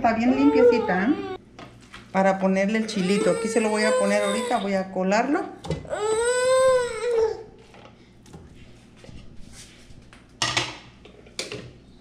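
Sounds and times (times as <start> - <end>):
kitchen handling noises: 10.4 - 11.8.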